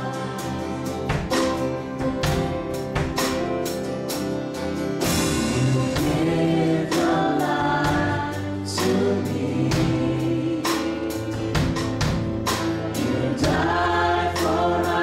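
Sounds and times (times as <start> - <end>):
voices singing together: 0.0 - 1.2, 5.3 - 12.0, 12.6 - 15.0
drum kit beat: 0.0 - 15.0
guitars: 0.0 - 15.0
keyboard: 0.0 - 15.0.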